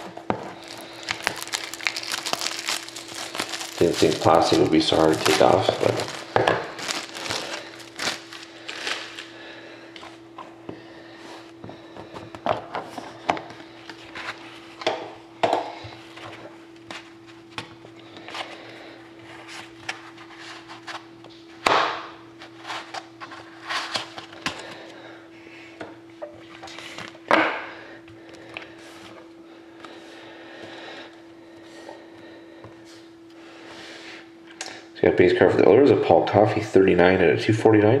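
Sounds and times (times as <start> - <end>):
faint steady hum: 0.0 - 38.0
cardboard box handling rustles: 0.3 - 9.2.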